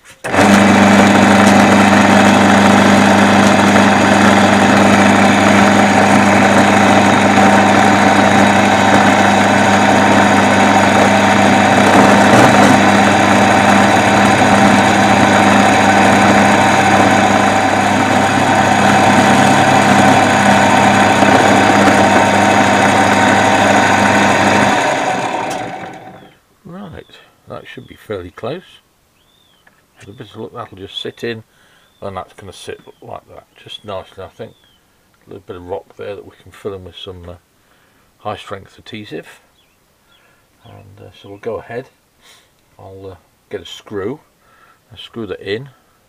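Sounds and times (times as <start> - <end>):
metal lathe cutting metal: 0.3 - 26.3.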